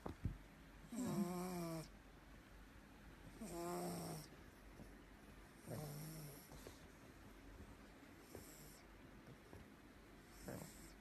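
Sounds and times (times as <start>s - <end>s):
dog snoring: 0.9s - 1.9s, 3.3s - 4.4s, 5.6s - 6.8s, 8.2s - 8.9s, 10.3s - 11.0s.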